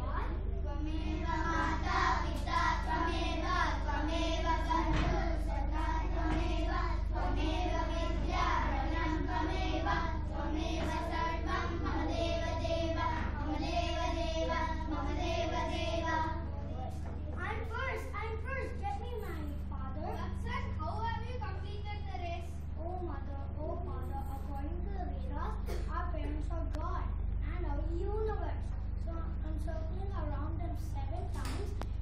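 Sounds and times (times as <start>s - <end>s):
children singing: 1.1s - 16.4s.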